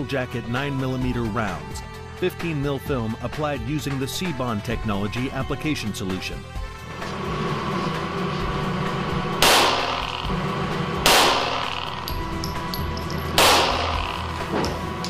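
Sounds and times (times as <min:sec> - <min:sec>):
background music: 0:00.0 - 0:15.0
gunshots hitting glass: 0:09.4 - 0:10.3, 0:11.0 - 0:15.0.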